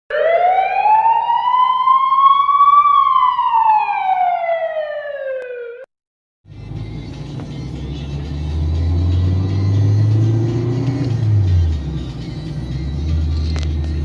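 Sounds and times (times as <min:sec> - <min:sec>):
siren wail: 0:00.1 - 0:05.9.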